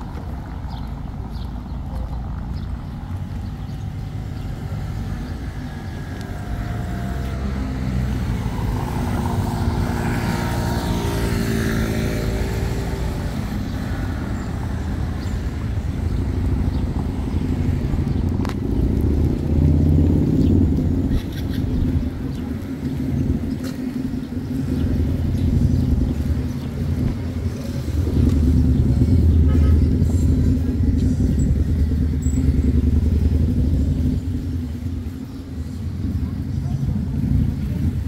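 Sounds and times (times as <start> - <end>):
car passing: 0.0 - 38.0
vehicle approaching: 0.0 - 38.0.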